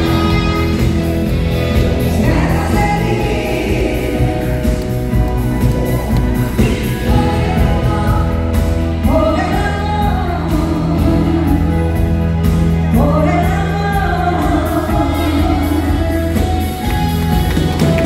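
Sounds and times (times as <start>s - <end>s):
live band playing: 0.0s - 18.0s
woman singing into a microphone: 2.1s - 4.8s, 6.1s - 16.8s.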